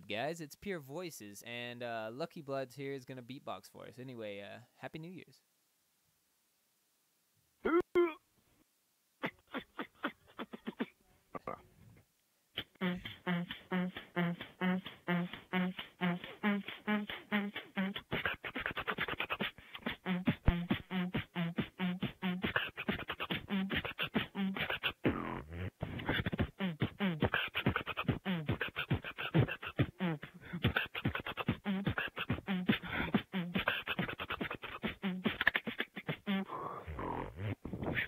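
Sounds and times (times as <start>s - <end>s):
beatboxing: 9.2s - 11.6s, 12.6s - 38.0s.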